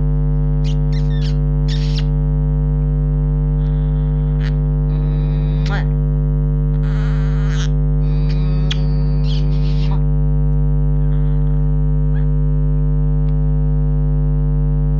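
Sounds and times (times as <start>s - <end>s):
loud steady hum: 0.0s - 14.9s
parrot chirps and squeaks: 0.6s - 2.1s, 6.8s - 10.0s.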